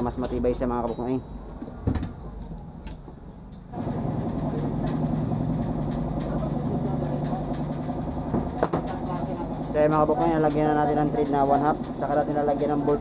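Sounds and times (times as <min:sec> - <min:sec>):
engine running: 0:03.7 - 0:13.0.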